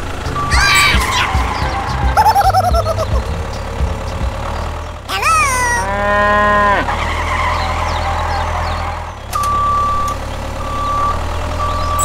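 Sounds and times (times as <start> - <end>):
low engine hum: 0.0 - 12.0
cow mooing: 5.8 - 7.0
reversing alarm beeps: 9.4 - 12.0.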